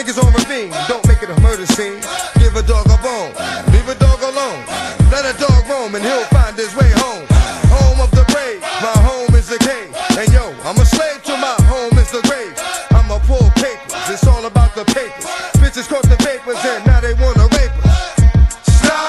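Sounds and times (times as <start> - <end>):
rapping over a beat: 0.0 - 19.0
heavy bass hits: 2.4 - 3.0, 3.7 - 4.2, 5.0 - 5.6, 6.4 - 8.3, 12.9 - 13.6, 16.9 - 18.9.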